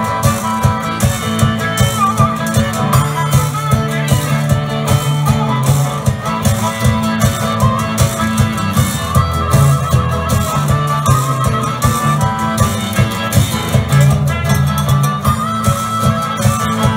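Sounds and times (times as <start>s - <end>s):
blues band playing: 0.0s - 16.9s
lead guitar bending notes: 0.0s - 16.9s.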